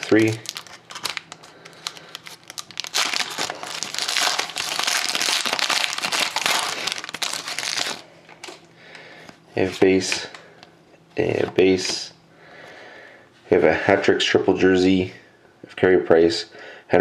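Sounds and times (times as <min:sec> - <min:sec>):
foil wrapper crinkling and tearing: 0:00.0 - 0:08.6.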